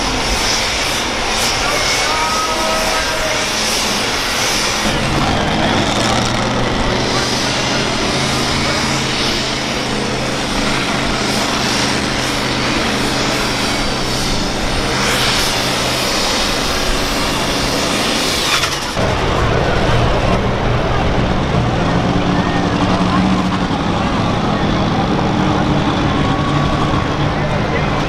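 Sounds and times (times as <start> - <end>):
louder diesel tractor engine: 0.0 - 28.0
tractor engine under full load: 0.0 - 28.0.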